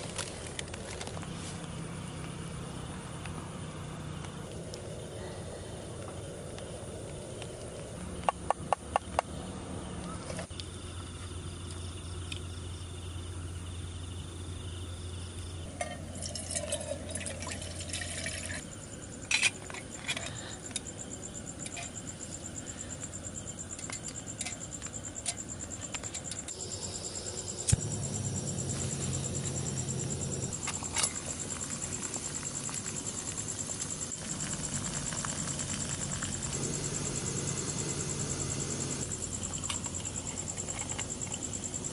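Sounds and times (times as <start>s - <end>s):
insects chirping: 0.0s - 41.9s
gas stove burning: 26.1s - 39.9s.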